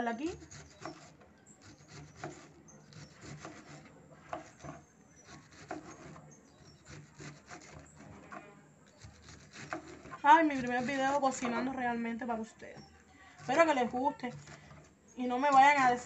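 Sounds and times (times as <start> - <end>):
knife slicing through cabbage: 0.3 - 11.6.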